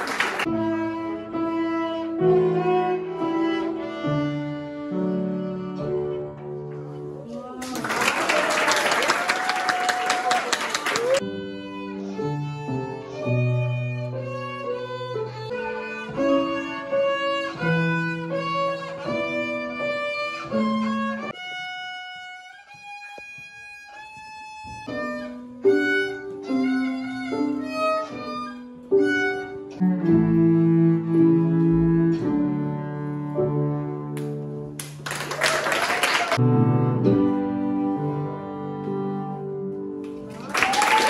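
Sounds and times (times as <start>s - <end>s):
violin melodies: 0.0s - 6.9s, 11.1s - 34.8s, 36.4s - 40.0s
cello low sustained notes: 0.4s - 6.4s, 26.7s - 34.6s, 36.4s - 39.9s.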